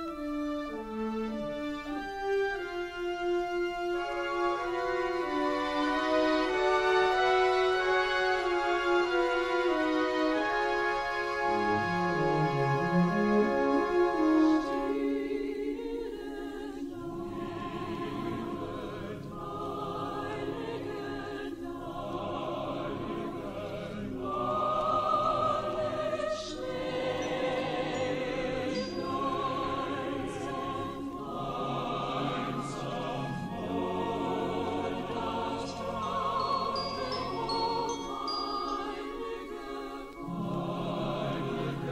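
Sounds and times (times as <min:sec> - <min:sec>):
slow choral singing: 0:00.0 - 0:41.9.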